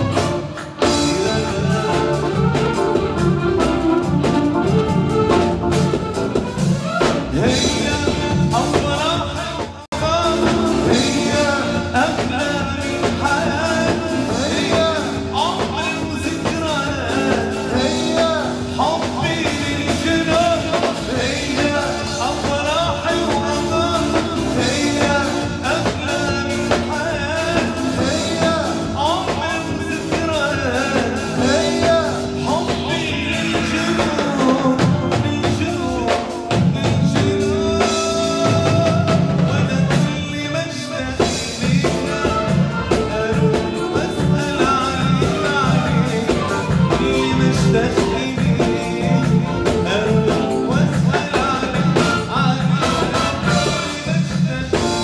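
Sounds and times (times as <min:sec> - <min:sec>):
ornamented melody with drum beat: 0:00.0 - 0:55.0.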